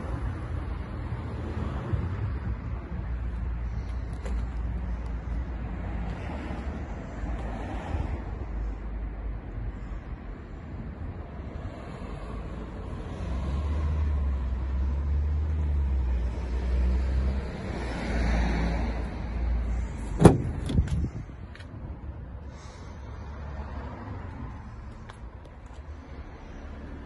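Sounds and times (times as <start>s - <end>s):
van door unlatched and opened: 20.0s - 21.2s.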